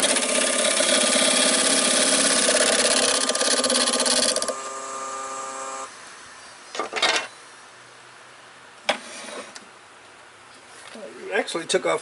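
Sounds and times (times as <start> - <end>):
turning tool cutting wood: 0.0 - 5.9
wood lathe motor hum: 0.0 - 5.9.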